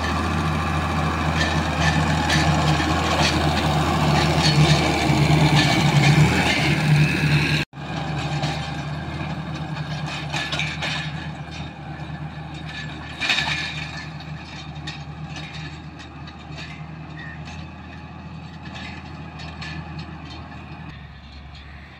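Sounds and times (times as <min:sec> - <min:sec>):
metal implement rattling and clanking: 0:00.0 - 0:21.9
tractor diesel engine under load: 0:00.0 - 0:21.9.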